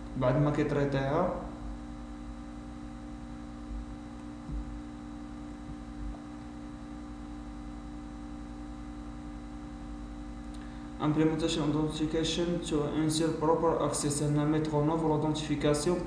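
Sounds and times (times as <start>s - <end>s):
electrical hum: 0.0s - 16.0s
soft low bumps: 3.7s - 4.9s, 5.6s - 6.4s.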